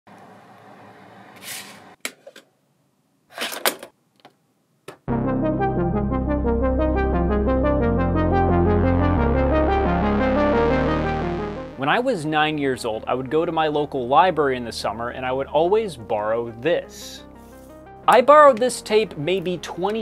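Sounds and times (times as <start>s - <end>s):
synthesizer brass-like chords: 5.1s - 15.4s, 16.1s - 20.0s.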